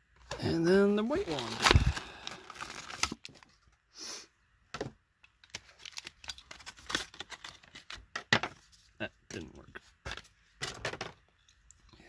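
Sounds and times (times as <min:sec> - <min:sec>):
stiff plastic crackling: 0:01.0 - 0:03.6
plastic blister pack tearing: 0:01.2 - 0:03.4.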